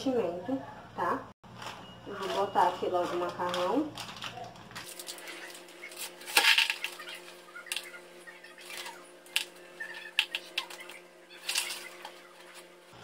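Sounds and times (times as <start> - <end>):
dry spaghetti rattling in container: 2.2 - 8.0.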